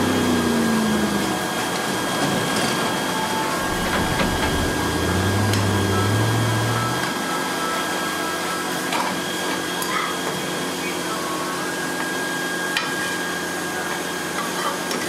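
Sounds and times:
gas burner rushing: 0:00.0 - 0:07.2
low machine hum: 0:00.0 - 0:07.8.

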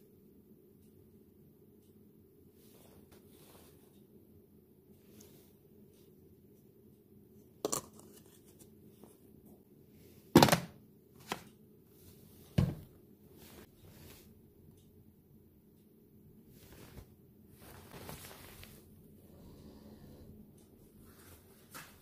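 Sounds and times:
plastic parts knocking and clicking: 0:10.4 - 0:11.4.

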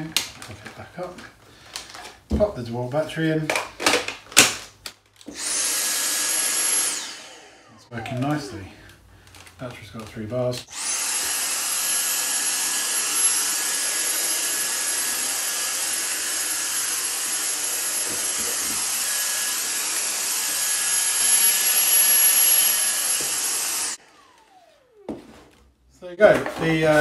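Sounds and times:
vacuum motor whining: 0:05.3 - 0:09.0, 0:10.6 - 0:25.6.

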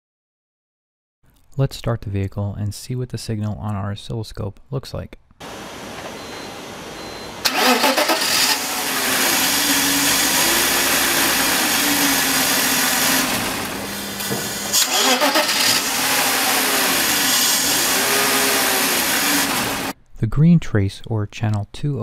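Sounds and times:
engine idling fast: 0:07.4 - 0:19.9
engine cranking and starting: 0:07.4 - 0:20.0.

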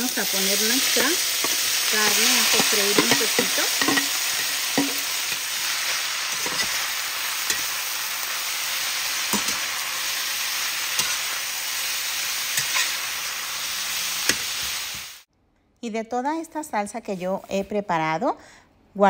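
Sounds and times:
pork sizzling in hot oil: 0:00.0 - 0:15.3
metal spatula scraping a pan: 0:00.8 - 0:08.2, 0:12.4 - 0:13.2.

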